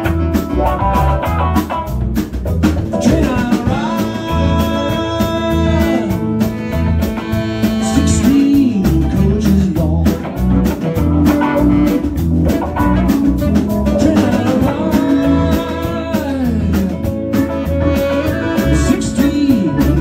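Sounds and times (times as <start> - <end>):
drum kit beat: 0.0 - 20.0
electric bass: 0.0 - 20.0
electric guitar bent notes: 0.0 - 20.0.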